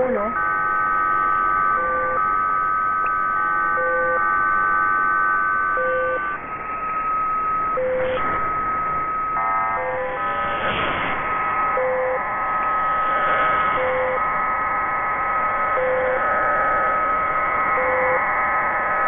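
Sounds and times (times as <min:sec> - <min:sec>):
held synthesizer tones: 0:01.6 - 0:14.4
short low beep: 0:05.8 - 0:06.4, 0:07.8 - 0:08.2, 0:11.8 - 0:12.2, 0:13.8 - 0:14.2
whoosh: 0:10.2 - 0:12.0.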